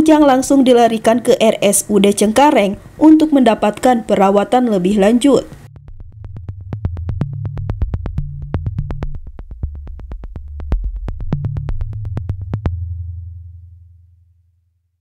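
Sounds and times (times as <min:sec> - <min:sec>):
low synthesizer bass line: 0:05.6 - 0:14.0.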